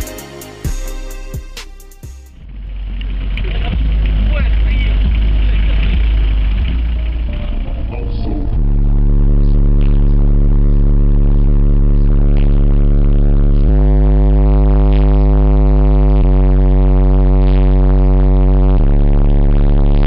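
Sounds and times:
loud deep subwoofer bass: 0:00.0 - 0:20.0.

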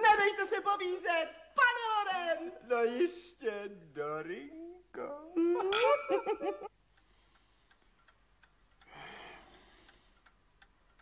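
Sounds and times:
man and woman laughing: 0:05.4 - 0:06.7
clock ticking: 0:06.1 - 0:11.0
breathy sigh: 0:08.9 - 0:10.0.

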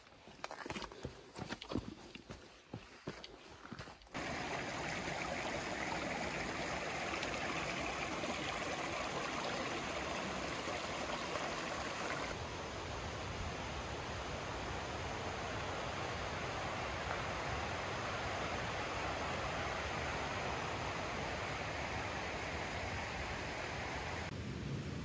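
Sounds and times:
mountain stream rushing: 0:04.1 - 0:12.4.

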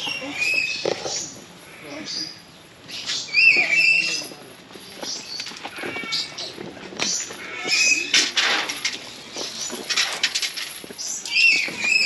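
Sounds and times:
birds squawking: 0:00.0 - 0:04.4, 0:05.0 - 0:08.8, 0:11.0 - 0:12.0.

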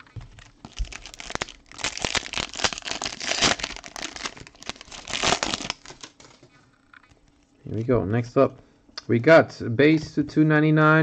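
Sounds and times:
foil wrapper crinkling and tearing: 0:00.4 - 0:06.4.

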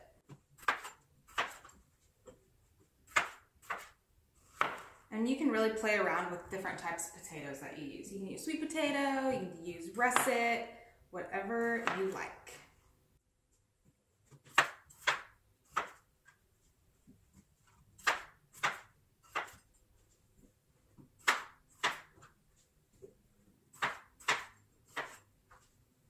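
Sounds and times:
knife cutting on wooden board: 0:23.8 - 0:25.3.

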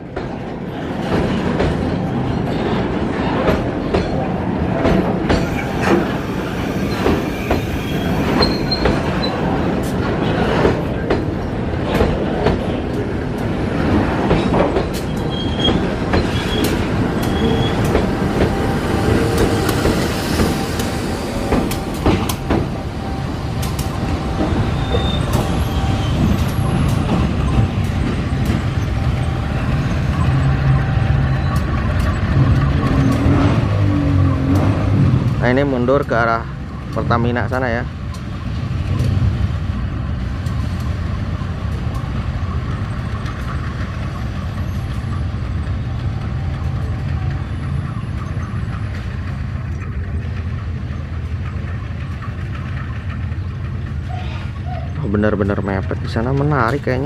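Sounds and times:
diesel locomotive engine hum: 0:00.0 - 0:57.0
high wheel squeals: 0:05.4 - 0:09.4, 0:15.1 - 0:33.6.

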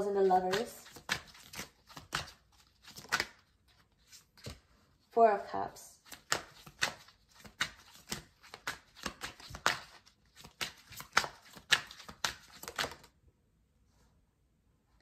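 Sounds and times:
cards being shuffled: 0:00.0 - 0:04.8, 0:06.0 - 0:13.1.

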